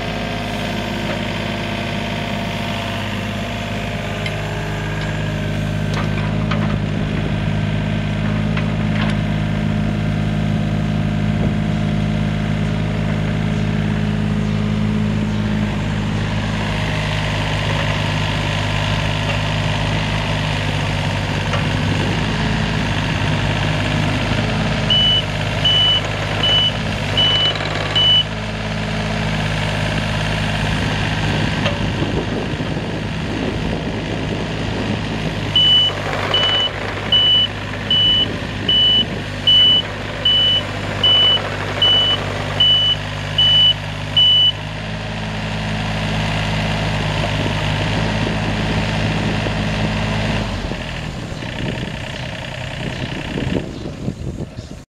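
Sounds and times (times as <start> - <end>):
excavator diesel engine running: 0.0 - 54.8
travel alarm beeps: 24.9 - 28.3, 35.6 - 44.6.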